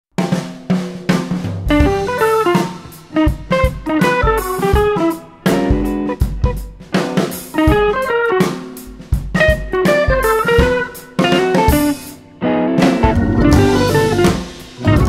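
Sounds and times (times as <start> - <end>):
drum kit beat: 0.2 - 15.0
plucked guitar: 9.4 - 15.0.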